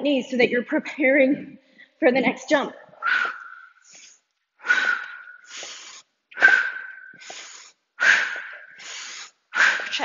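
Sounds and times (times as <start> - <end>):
woman breathing heavily: 3.0 - 10.0.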